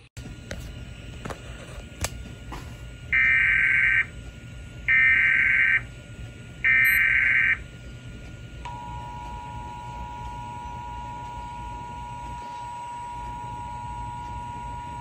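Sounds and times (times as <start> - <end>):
warbling data tones: 6.7 - 7.6.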